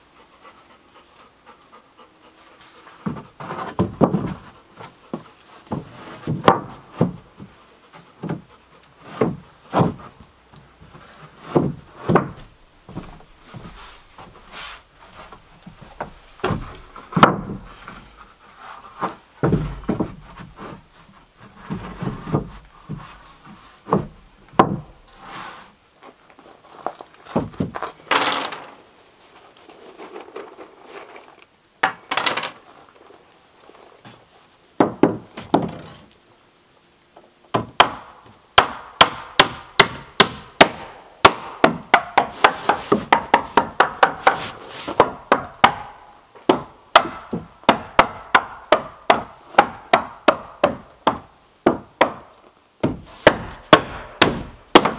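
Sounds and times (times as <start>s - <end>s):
scraping sounds: 13.4s - 15.5s, 25.1s - 28.6s, 29.2s - 31.5s
hammer striking nails into wood: 37.5s - 44.4s, 45.0s - 54.9s.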